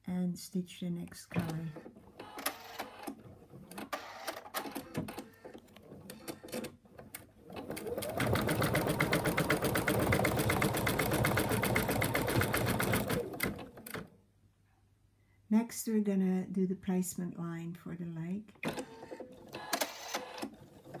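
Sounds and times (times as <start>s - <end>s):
embroidery machine stitching: 1.4s - 14.1s, 18.7s - 21.0s.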